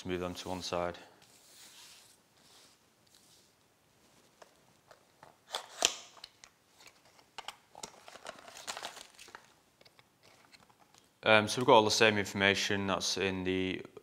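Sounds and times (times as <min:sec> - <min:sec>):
cardboard box and packaging rustling: 0:06.8 - 0:11.0.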